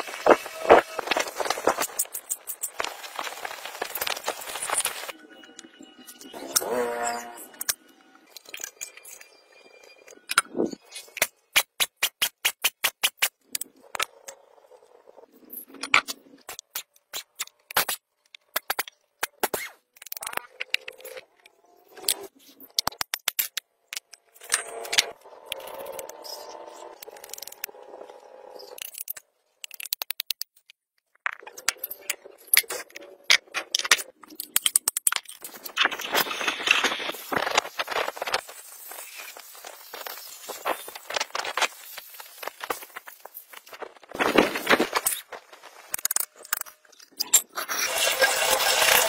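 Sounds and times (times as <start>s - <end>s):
angle grinder on metal: 6.3s - 7.6s, 47.8s - 49.0s.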